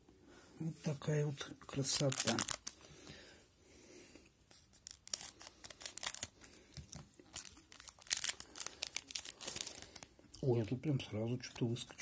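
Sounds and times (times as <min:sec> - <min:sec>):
wrapper tearing and crinkling: 0:01.8 - 0:02.9, 0:04.7 - 0:10.1.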